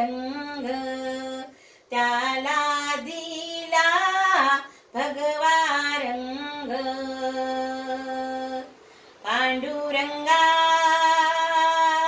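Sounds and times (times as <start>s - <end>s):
breath: 1.5s - 1.9s, 4.7s - 5.0s, 8.8s - 9.2s.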